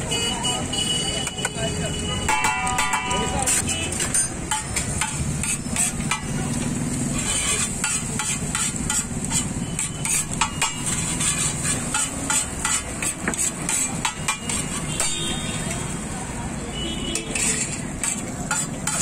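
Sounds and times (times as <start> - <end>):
metal spatula tapping on griddle: 2.3 - 6.7, 7.5 - 15.4, 17.1 - 19.0.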